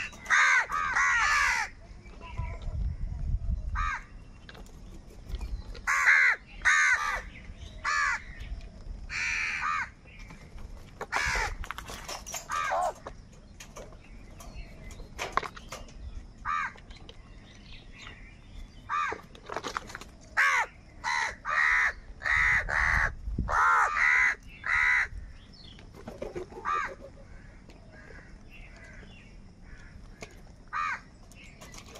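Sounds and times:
crows cawing: 0.0s - 1.8s, 3.8s - 4.1s, 5.9s - 8.4s, 9.1s - 10.0s, 11.0s - 11.6s, 16.4s - 16.8s, 18.9s - 19.3s, 20.4s - 25.3s, 26.6s - 31.1s.

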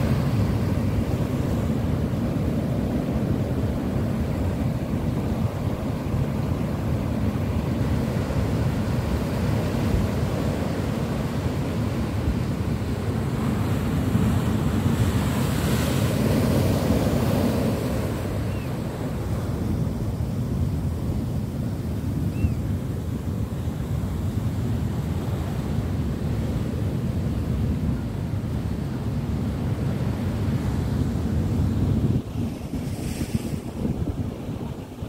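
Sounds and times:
ocean waves rumbling: 0.0s - 35.0s
wind buffeting microphone: 31.0s - 35.0s
hiss of foaming wave wash: 32.6s - 34.0s.

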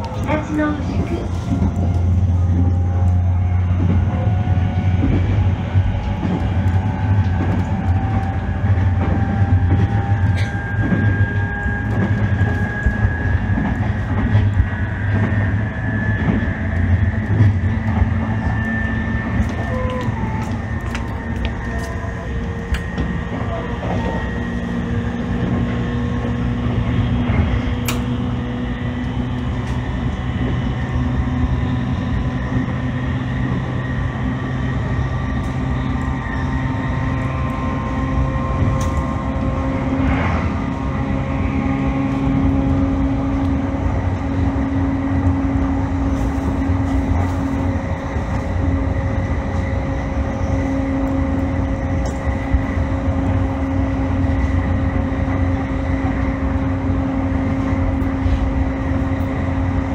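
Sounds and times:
electric train motor hum: 0.0s - 59.9s
wheel-on-rail rumble: 0.0s - 59.9s
sharp clicks from the track: 27.8s - 28.2s.

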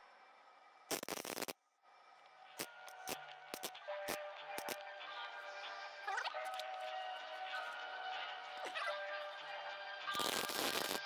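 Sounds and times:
background music: 0.0s - 11.0s
welding arc crackle: 0.9s - 1.6s, 10.2s - 11.0s.

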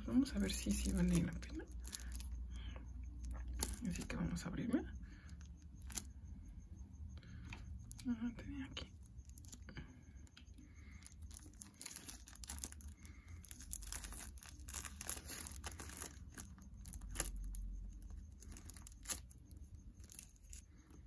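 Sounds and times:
plastic crinkling and tearing: 0.3s - 2.4s, 3.2s - 4.1s, 5.8s - 6.1s, 9.2s - 9.6s, 10.8s - 20.7s.

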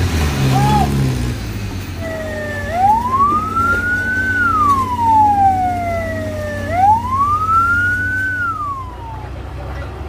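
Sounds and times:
low engine hum: 0.0s - 10.0s
fainter sliding siren tone: 2.0s - 9.3s
ambulance siren wailing: 2.0s - 9.4s.

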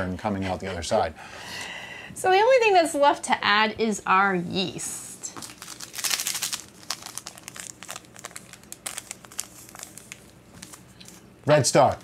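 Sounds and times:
foil sachet crinkling: 5.4s - 12.0s.

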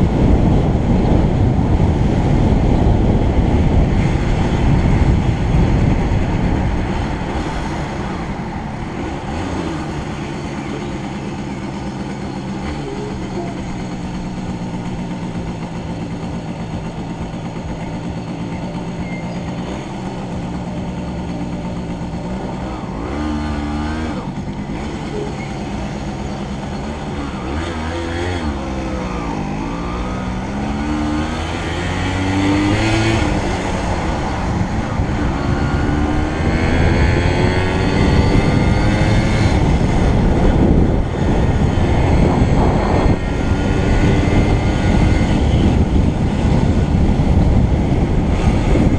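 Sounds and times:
wind rush: 0.0s - 10.0s, 29.3s - 48.9s
motorcycle engine accelerating: 0.0s - 48.9s.

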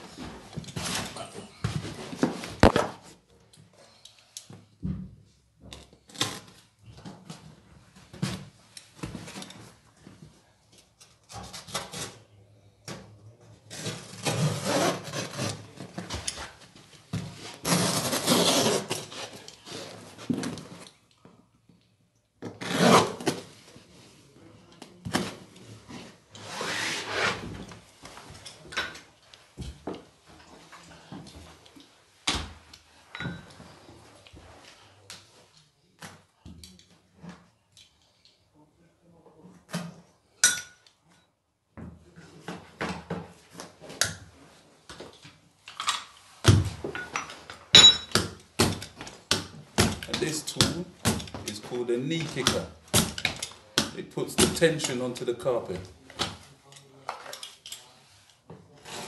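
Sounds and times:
carpet scraping across underlay: 26.4s - 27.5s
metal hand tools knocking and clinking: 47.0s - 48.3s.

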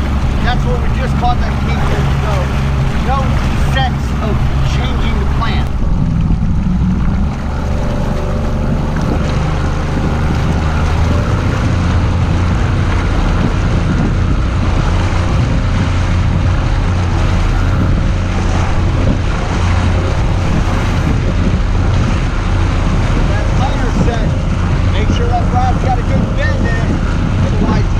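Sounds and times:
outboard motor running: 0.0s - 27.9s
water rushing along hull: 0.0s - 27.9s
wind on microphone: 0.0s - 27.9s.

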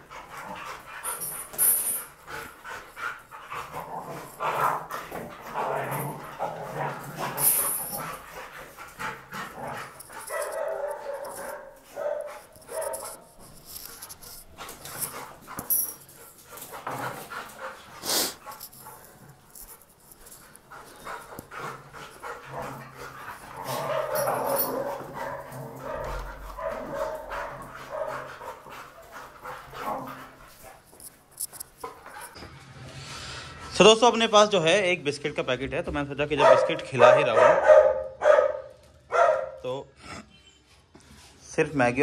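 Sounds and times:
dogs growling while playing: 0.0s - 31.0s
scuffling on stone floor: 3.6s - 32.4s.

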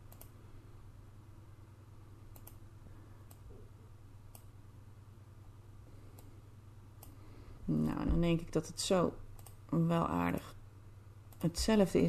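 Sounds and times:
faint computer mouse clicks: 0.0s - 0.3s, 2.3s - 2.6s, 9.4s - 9.6s
low steady hum: 0.0s - 12.0s.

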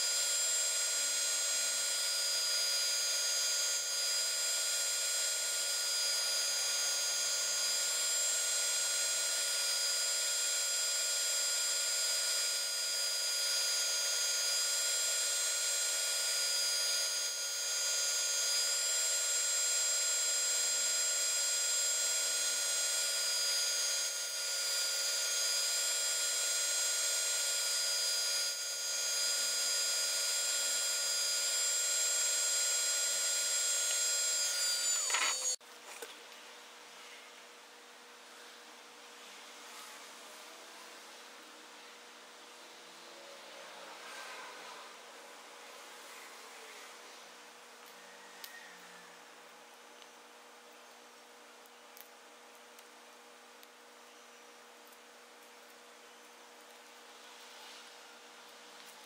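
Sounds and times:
scroll saw whining: 0.0s - 35.6s.

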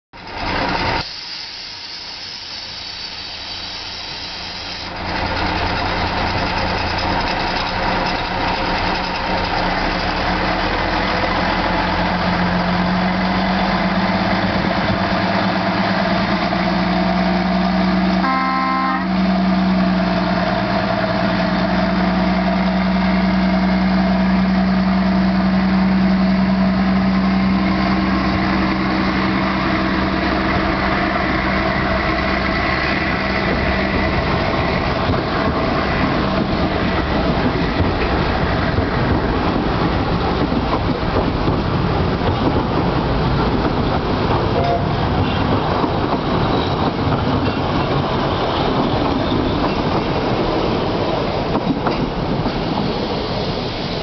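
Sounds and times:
diesel locomotive engine drone: 0.2s - 54.0s
locomotive horn blast: 18.2s - 19.4s.

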